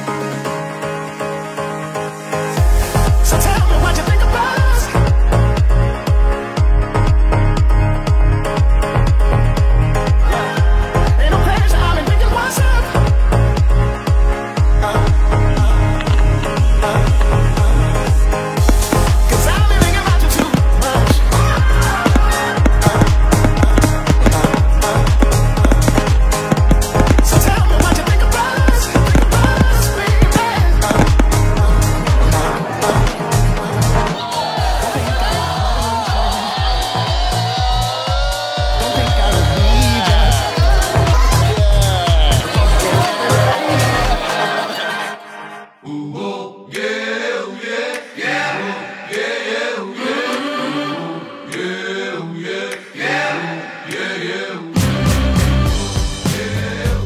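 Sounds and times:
upbeat dance music: 2.5 - 5.6, 14.2 - 44.8
song with chanted choir vocals: 10.0 - 13.0, 14.3 - 57.0
steady drum beat: 18.6 - 33.8
heavy bass line: 18.6 - 34.1, 38.8 - 43.6.

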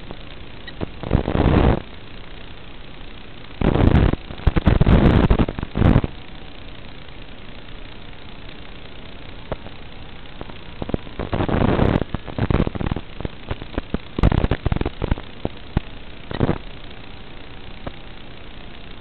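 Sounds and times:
crackling static bursts: 0.0 - 19.0
steady receiver hiss: 0.0 - 19.0.

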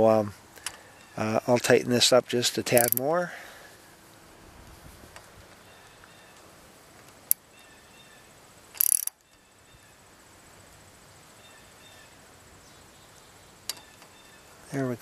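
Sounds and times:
hose clamp clicking and scraping: 2.6 - 3.1, 8.8 - 9.2
sharp click: 2.7 - 3.0, 8.8 - 9.3
faint chirping: 5.5 - 6.5, 7.3 - 15.0.

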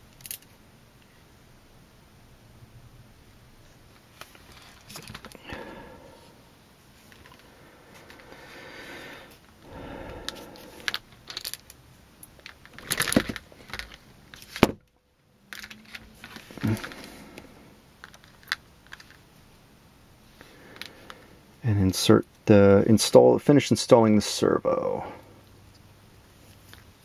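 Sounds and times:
hands handling small parts: 0.1 - 0.5, 3.9 - 5.5, 9.3 - 14.7, 15.5 - 19.3.

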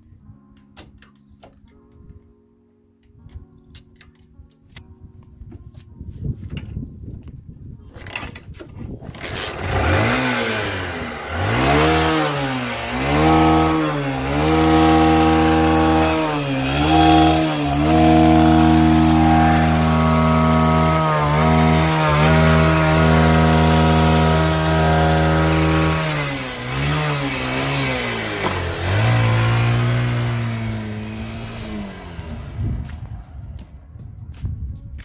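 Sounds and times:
motorcycle engine revving: 9.0 - 33.9.

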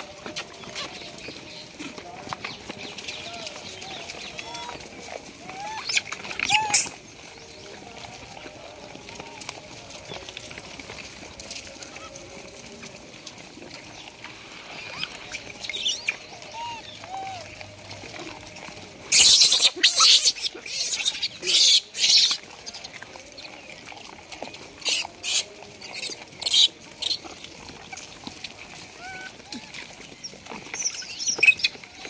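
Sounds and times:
monkeys calling faintly: 3.2 - 7.0, 14.4 - 23.6, 24.4 - 32.0.

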